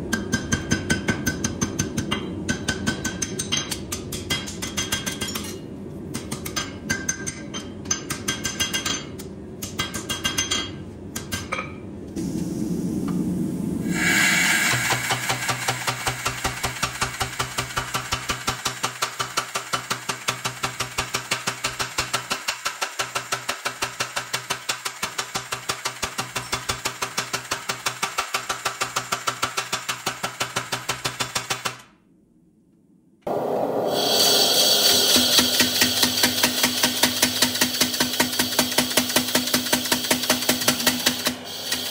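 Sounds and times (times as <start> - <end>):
hammer striking steel on anvil: 0.0 - 11.8, 14.7 - 31.7, 33.9 - 41.9
steady low rumble: 12.1 - 14.1, 33.3 - 35.2.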